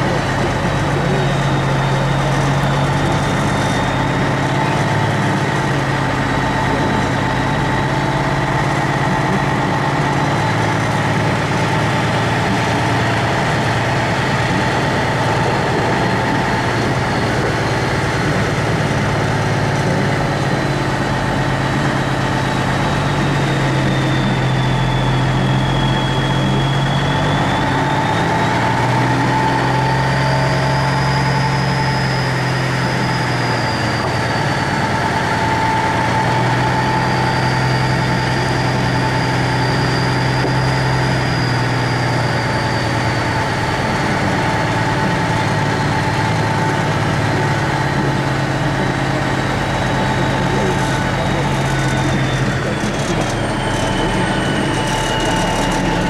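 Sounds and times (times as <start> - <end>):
diesel truck engine running: 0.0 - 56.0
high whine: 0.0 - 56.0.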